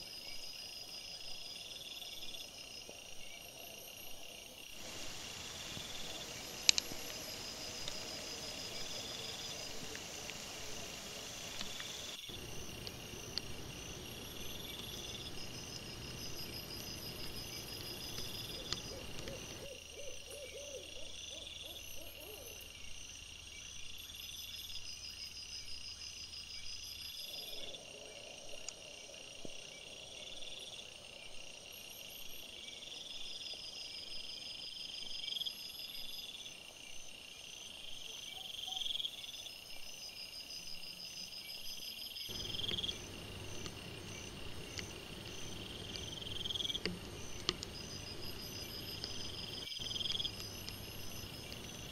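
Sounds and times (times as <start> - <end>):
crickets trilling: 0.0 - 51.9
owl hooting: 13.4 - 22.6.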